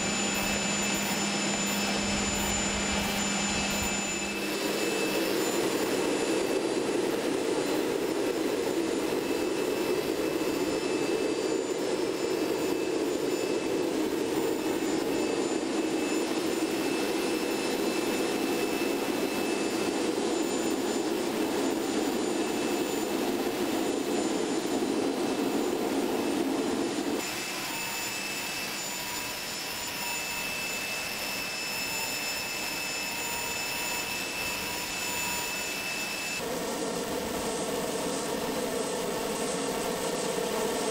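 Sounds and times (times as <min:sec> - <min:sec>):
high steady turbine whine: 0:00.0 - 0:40.9.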